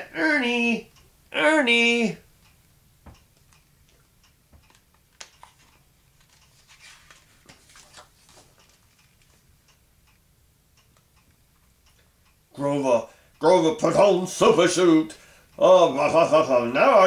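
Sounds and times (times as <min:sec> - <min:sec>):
soft clicks and taps: 0:02.5 - 0:09.4
book page turning: 0:04.6 - 0:09.4.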